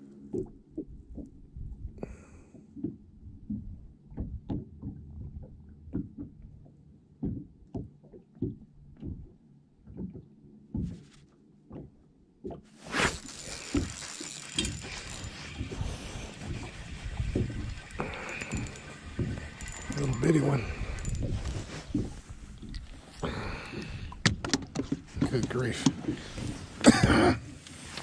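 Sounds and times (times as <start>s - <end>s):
waves slapping boat hull: 9.9s - 28.0s
wind on microphone: 15.0s - 23.3s.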